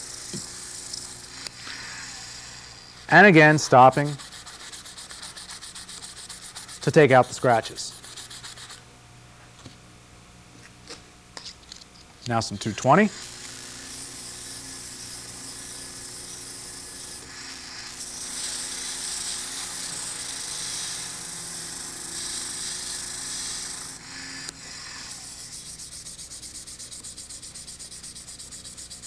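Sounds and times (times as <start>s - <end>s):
rhythmic rubbing: 3.0s - 8.8s
sandpaper sanding wood: 3.0s - 8.8s, 24.8s - 29.0s.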